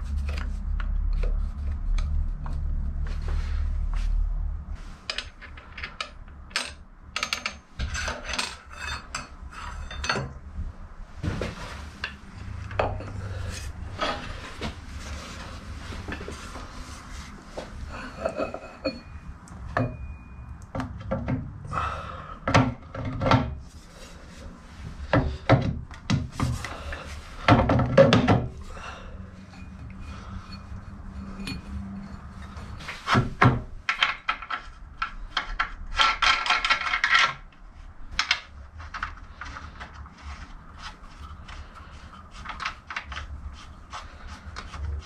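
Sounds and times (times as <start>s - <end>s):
metal parts clinking and scraping: 5.0s - 10.5s, 28.6s - 33.2s, 33.8s - 44.8s.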